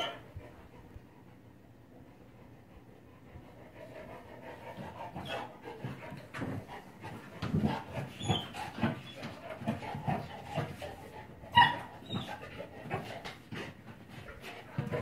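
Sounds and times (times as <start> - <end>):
puppy panting: 0.0 - 15.0.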